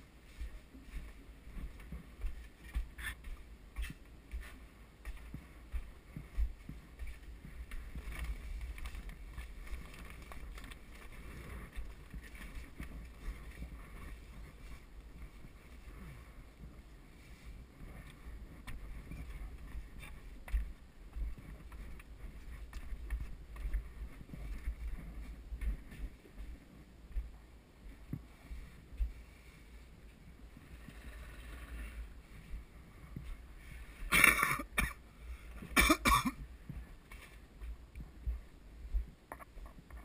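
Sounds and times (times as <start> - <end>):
footsteps on wooden steps: 0.2 - 16.0, 17.7 - 29.3, 35.6 - 40.0.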